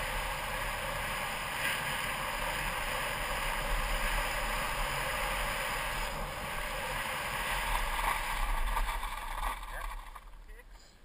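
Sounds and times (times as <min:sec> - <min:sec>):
bike tyres rolling on dirt: 0:00.0 - 0:10.6.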